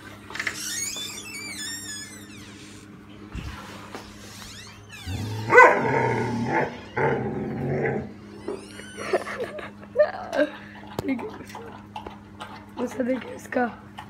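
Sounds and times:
dog growling barks: 0:05.4 - 0:08.2
dog lapping from metal bowl: 0:10.4 - 0:14.0.

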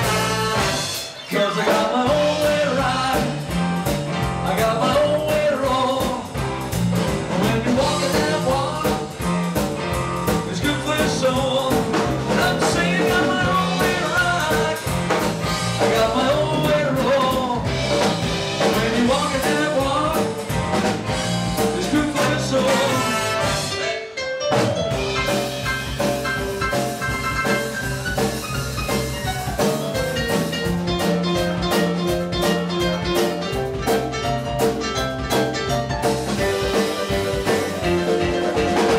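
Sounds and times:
man singing lead vocal: 0:00.0 - 0:03.6, 0:04.4 - 0:06.4, 0:07.2 - 0:09.3, 0:10.3 - 0:17.8, 0:18.6 - 0:20.5, 0:21.6 - 0:24.2
live rock band playing: 0:00.0 - 0:38.9.

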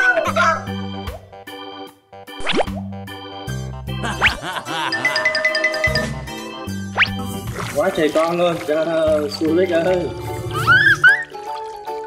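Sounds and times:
bell-like mallet notes: 0:04.9 - 0:06.8.

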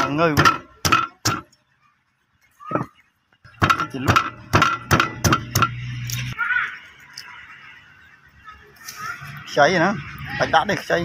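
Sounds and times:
cleaver chopping on brick: 0:03.6 - 0:05.8.

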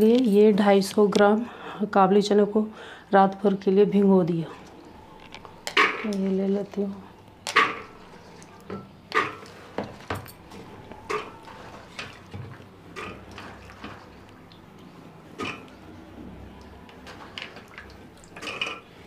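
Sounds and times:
pots and bowl clattering: 0:18.4 - 0:18.9.

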